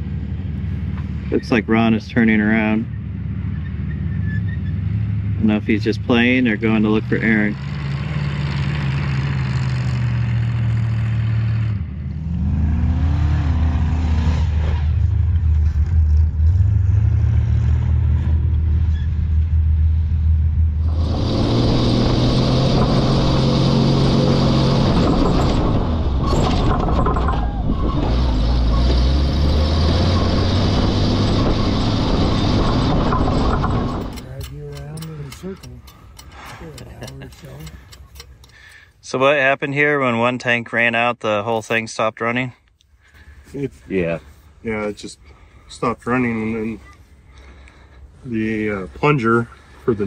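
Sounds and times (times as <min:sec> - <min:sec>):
engine whine: 0:00.0 - 0:38.9
truck engine running: 0:19.6 - 0:38.9.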